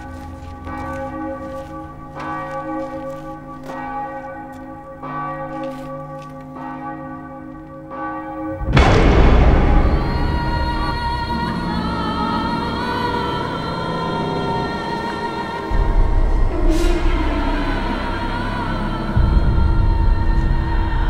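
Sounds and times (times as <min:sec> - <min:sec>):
large church bell tolling: 0:00.0 - 0:20.5
sudden loud burst of noise: 0:08.7 - 0:11.8.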